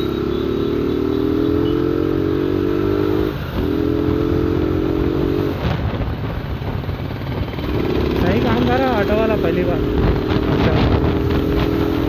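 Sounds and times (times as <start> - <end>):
motorcycle engine accelerating: 0.0 - 12.0
wind noise on microphone: 9.6 - 12.0.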